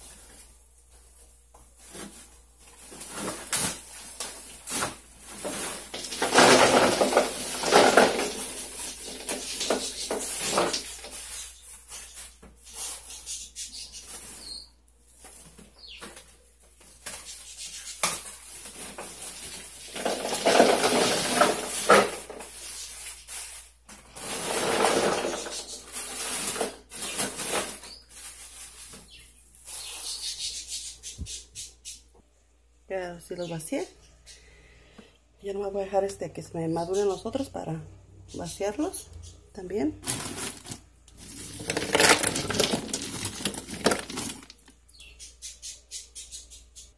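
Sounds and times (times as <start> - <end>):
plastic bags rustling: 0.0 - 12.5, 14.0 - 29.8, 40.0 - 44.8
tomatoes knocking and rolling: 0.9 - 12.6, 15.2 - 29.2, 40.0 - 44.9.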